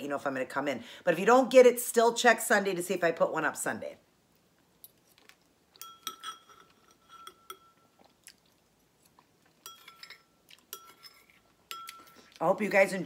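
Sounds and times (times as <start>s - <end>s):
quiet chewing: 4.3s - 12.4s
spoon clinking on ceramic bowl: 5.8s - 7.9s, 9.6s - 12.2s.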